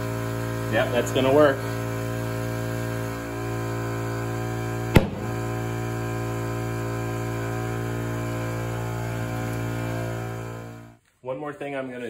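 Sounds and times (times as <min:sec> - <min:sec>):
air compressor running: 0:00.0 - 0:11.0
tire bead popping: 0:05.0 - 0:05.5.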